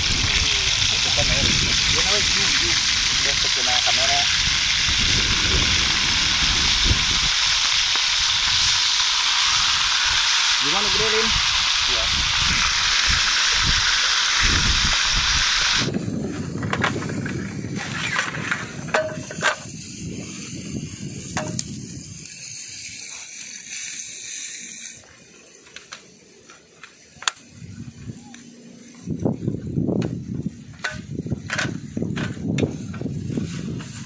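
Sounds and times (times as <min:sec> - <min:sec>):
food sizzling in oil: 0:00.0 - 0:15.9, 0:18.0 - 0:26.4
low rumble: 0:04.3 - 0:07.6
camping table clicks and clacks: 0:30.8 - 0:33.1.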